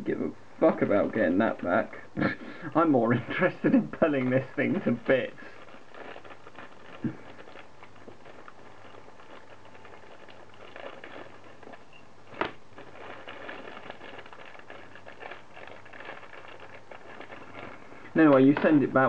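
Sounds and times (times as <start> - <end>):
steady low hum: 0.0 - 19.0
faint rustling: 4.2 - 19.0.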